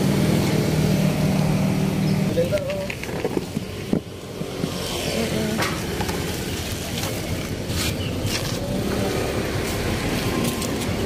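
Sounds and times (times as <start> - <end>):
traffic hum: 0.0 - 11.0
plastic bag rustling: 5.8 - 8.8.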